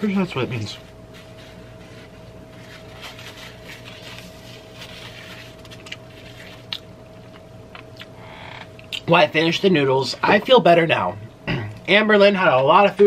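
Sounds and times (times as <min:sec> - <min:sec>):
faint steady hum: 0:00.0 - 0:13.0
person chewing food: 0:05.6 - 0:09.0.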